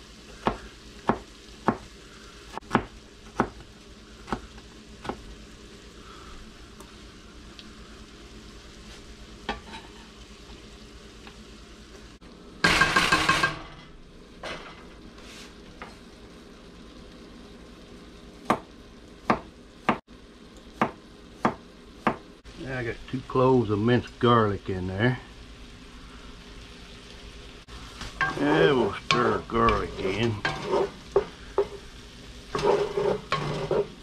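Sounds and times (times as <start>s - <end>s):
food sizzling in a pot: 0.0s - 34.0s
knife chopping on cutting board: 0.4s - 1.9s, 2.6s - 3.6s, 20.8s - 22.2s
wooden spoon scraping pot: 28.1s - 31.8s, 32.5s - 34.0s.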